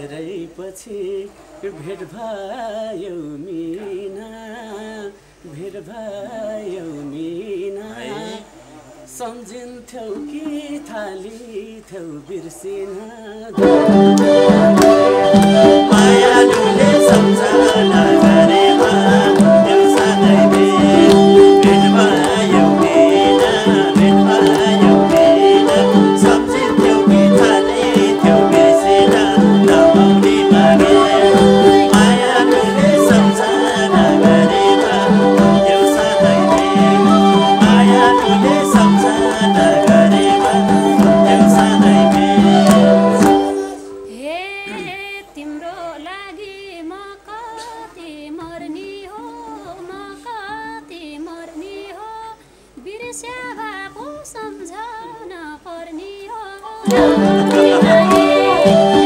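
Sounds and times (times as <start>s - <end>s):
hand drum rhythm: 13.6s - 43.8s, 56.9s - 59.0s
bowed string instrument: 13.6s - 44.2s, 56.9s - 59.0s
keyboard playing a tune: 13.6s - 44.2s, 56.9s - 59.0s.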